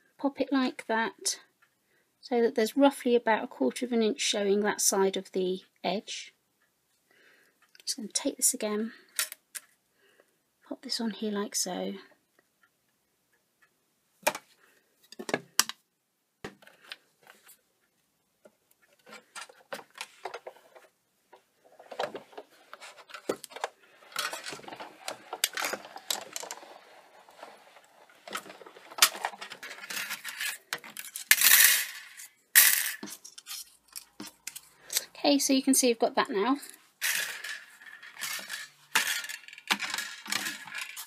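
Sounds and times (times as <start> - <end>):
cardstock rustling: 21.7 - 31.4.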